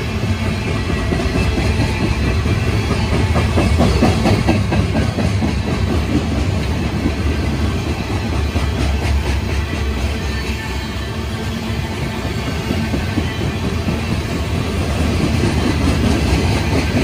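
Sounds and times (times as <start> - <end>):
freight train rumbling past: 0.0 - 17.0
wheels clacking over rail joints: 0.1 - 10.6.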